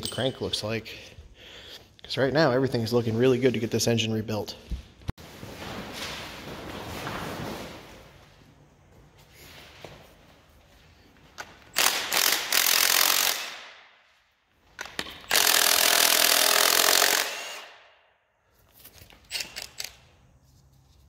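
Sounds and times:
handheld power tool running: 11.8s - 13.6s, 15.3s - 17.7s.

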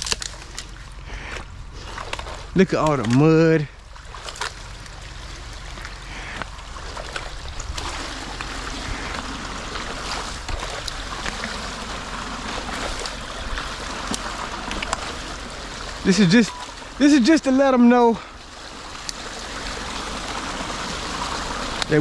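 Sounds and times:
sticks clicking and cracking: 0.0s - 3.2s
water trickling and gurgling: 0.0s - 22.0s.

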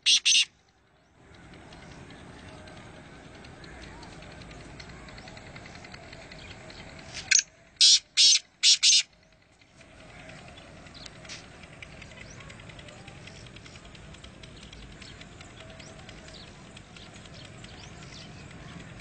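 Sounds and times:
francolin calling: 0.0s - 0.5s, 7.3s - 9.1s.

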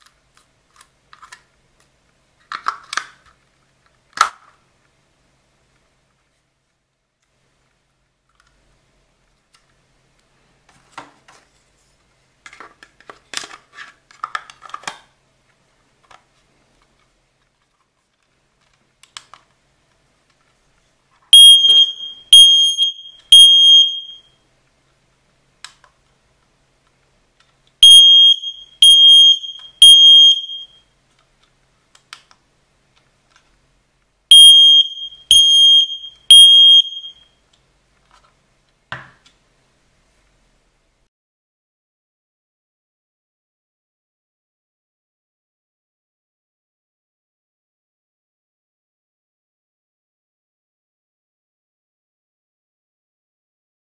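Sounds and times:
smoke alarm beeping: 21.3s - 24.4s, 27.8s - 30.8s, 34.3s - 37.3s.

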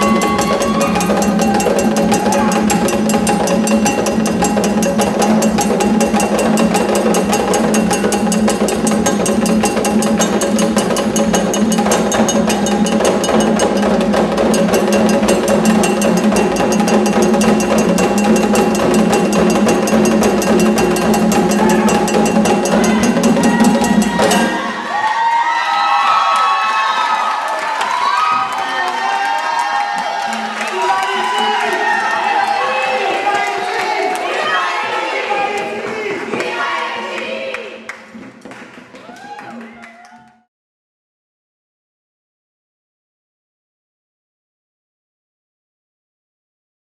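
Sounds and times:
hand drums playing dance rhythm: 0.0s - 24.8s.

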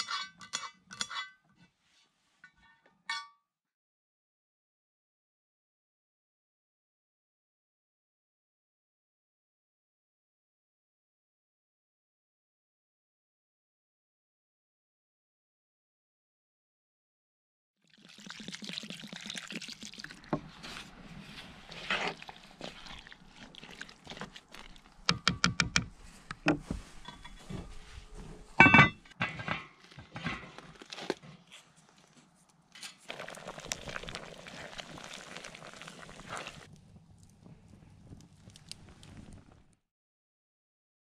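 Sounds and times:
spoon stirring wet food in pot: 20.0s - 26.4s.

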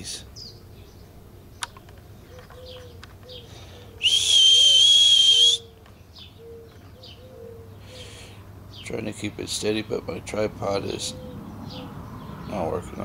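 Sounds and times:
person whistling high note: 4.0s - 5.7s.

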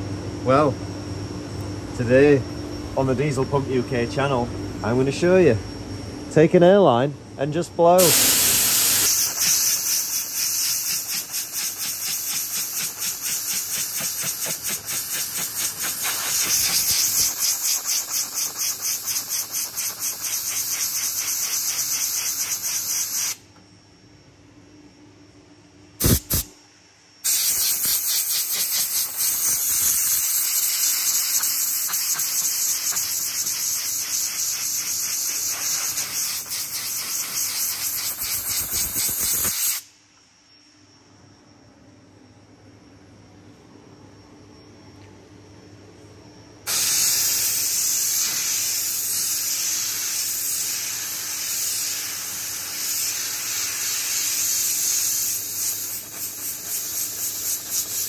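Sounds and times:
air blow gun hissing: 8.0s - 23.4s, 26.0s - 26.5s, 27.2s - 39.9s, 46.7s - 58.0s.

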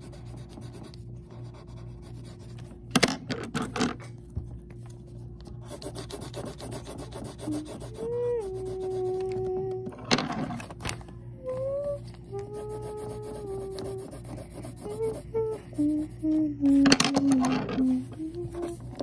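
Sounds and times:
colored pencil scratching on paper: 0.0s - 2.7s, 5.6s - 9.4s, 12.0s - 19.0s
person humming: 7.1s - 10.0s, 11.3s - 19.0s.

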